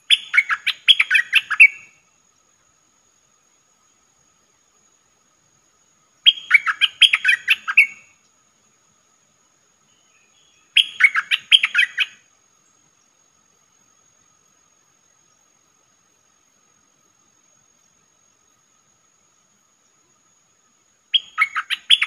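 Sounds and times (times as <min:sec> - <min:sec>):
bird whistling song: 0:00.0 - 0:02.0, 0:06.2 - 0:08.2, 0:09.9 - 0:12.2, 0:21.1 - 0:22.0.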